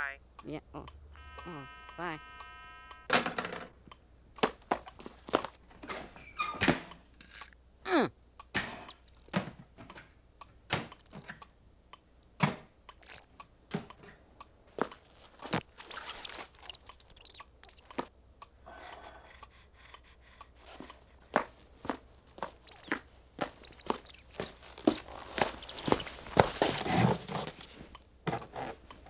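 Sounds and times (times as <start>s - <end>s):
sharp little clicks and taps: 8.4s - 18.6s, 19.4s - 26.8s
scratchy rustles: 23.5s - 27.9s.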